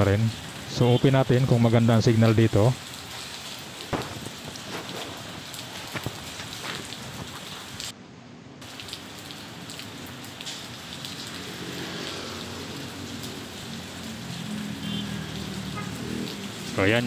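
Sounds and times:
rain on wet pavement: 0.0 - 8.0, 8.6 - 17.0
water drips: 8.6 - 17.0.

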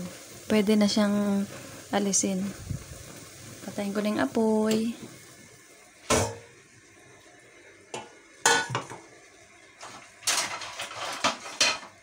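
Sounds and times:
metal cookware clanking: 7.9 - 9.0, 9.8 - 12.0.

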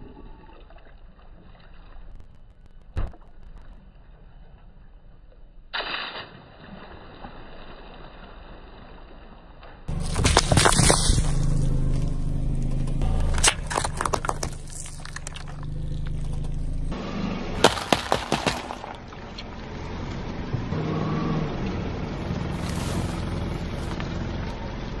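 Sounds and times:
cartons bursting under car tyre: 9.9 - 19.3
car engine humming: 9.9 - 25.0.

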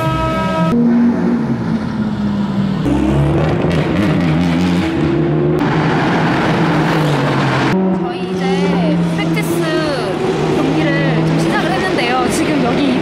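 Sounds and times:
race car engines revving: 0.0 - 13.0.

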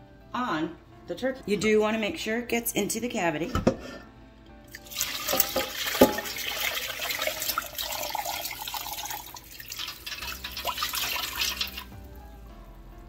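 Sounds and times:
liquid splashing into a pot: 4.7 - 12.0.

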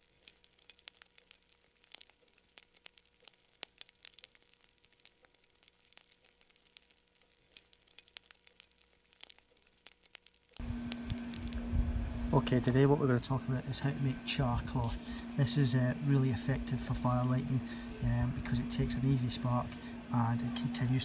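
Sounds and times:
faint crackling clicks: 0.0 - 11.7
faint steady hum: 0.0 - 21.0.

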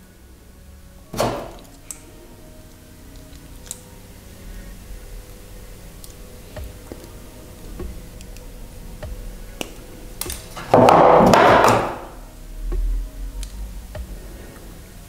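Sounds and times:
pliers and wire clicking: 1.2 - 2.1, 2.7 - 4.0, 6.0 - 7.2, 7.8 - 10.8.

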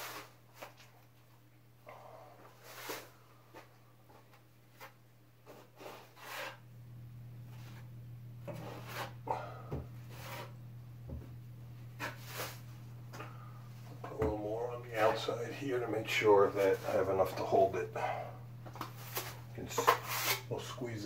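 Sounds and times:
steady low hum: 0.1 - 21.0
drywall knife scraping: 4.8 - 6.6, 8.5 - 9.2, 10.0 - 10.6, 12.0 - 12.7, 19.0 - 20.6.

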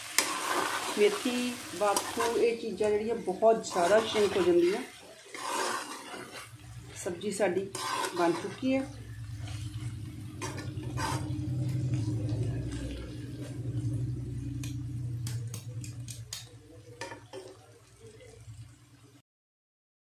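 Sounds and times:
metal spoon stirring and scraping: 0.0 - 17.7
steady low hum: 6.4 - 17.0.

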